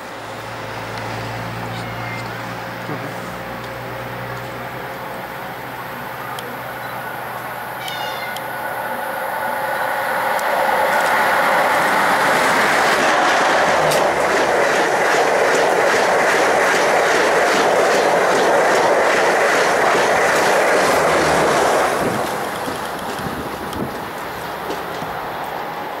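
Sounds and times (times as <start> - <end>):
train passing at speed: 0.0 - 26.0
wheels clicking over rail joints: 10.3 - 25.7.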